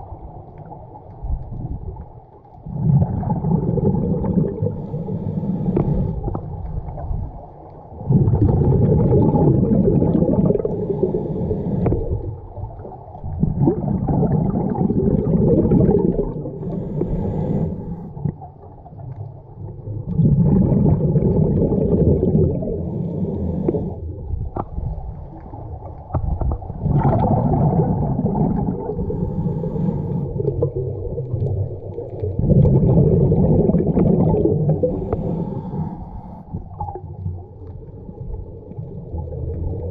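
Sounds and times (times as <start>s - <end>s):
exhaled bubbles rushing: 0.0s - 39.9s
diver inhaling through regulator: 3.4s - 6.4s, 10.0s - 12.2s, 14.7s - 18.4s, 22.6s - 24.1s, 28.4s - 30.6s, 33.6s - 36.7s.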